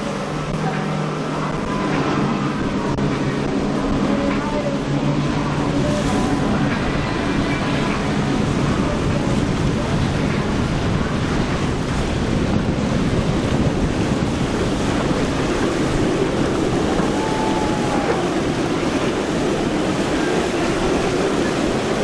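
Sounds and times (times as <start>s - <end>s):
boat engines running fast: 0.0s - 22.0s
hull spray: 0.0s - 22.0s
surf: 0.0s - 22.0s
wind noise: 0.0s - 22.0s.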